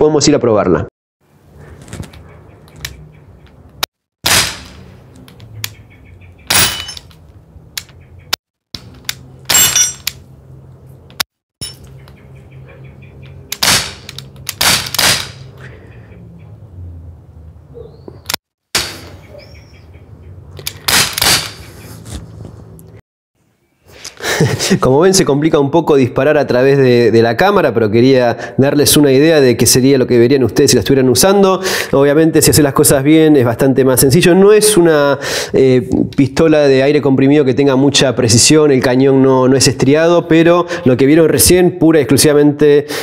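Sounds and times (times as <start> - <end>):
air pistol shots: 4.2 - 4.9, 13.5 - 15.5, 18.7 - 19.2, 20.7 - 21.7.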